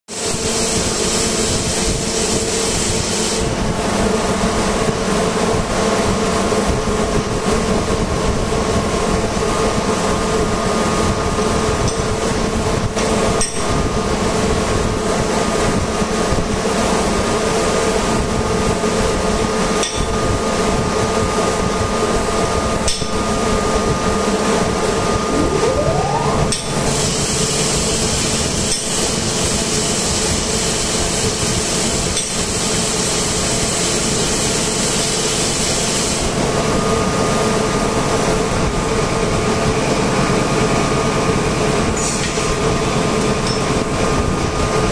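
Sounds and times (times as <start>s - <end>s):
machinery drone: 24.5s - 28.6s.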